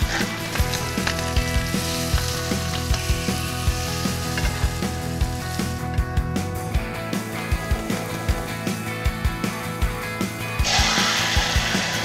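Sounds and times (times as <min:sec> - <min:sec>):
steak sizzling in butter: 0:00.0 - 0:06.0
background music with beat: 0:00.0 - 0:12.0.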